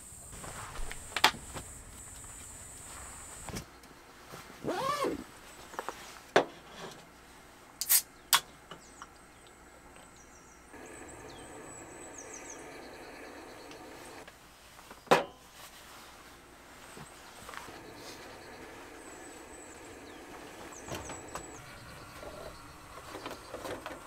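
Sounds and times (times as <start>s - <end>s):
can clicking: 7.8s - 8.4s.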